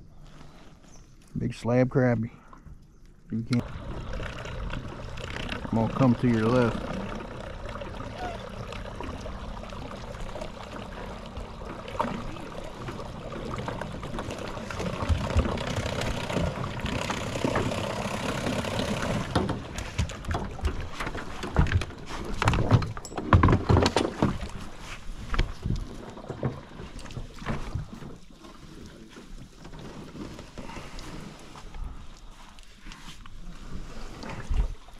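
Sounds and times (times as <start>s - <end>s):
water noise: 0.0s - 34.9s
hollow knocks inside boat: 14.0s - 17.8s, 19.0s - 24.7s.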